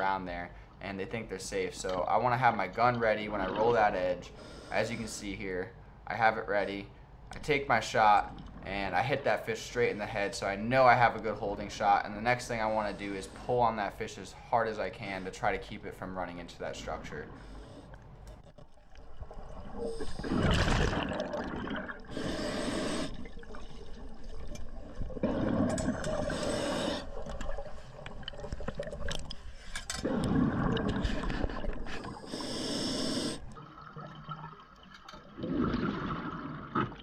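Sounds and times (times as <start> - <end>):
bubbling underwater exhalations: 19.4 - 27.7, 30.0 - 32.7, 35.4 - 37.0
hissing regulator inhalations: 22.1 - 23.3, 26.1 - 27.4, 31.8 - 33.6.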